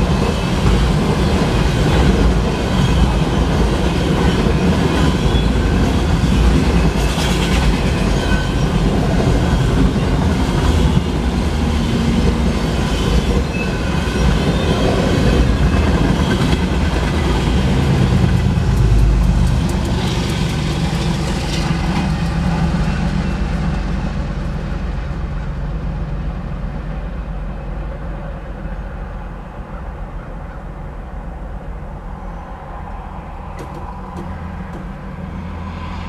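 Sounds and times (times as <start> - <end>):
train wheels clattering: 0.0 - 24.0
freight train rumbling past: 0.0 - 36.0.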